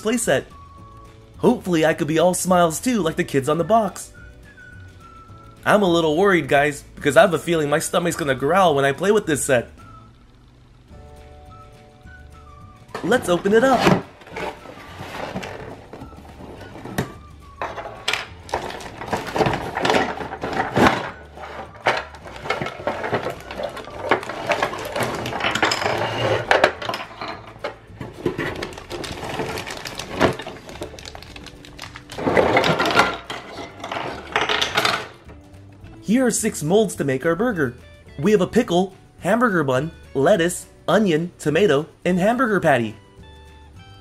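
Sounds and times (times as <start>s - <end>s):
plastic bags rustling: 13.0s - 35.1s
plastic pieces knocking and clicking: 16.9s - 35.3s
cardboard box being opened: 28.2s - 32.4s.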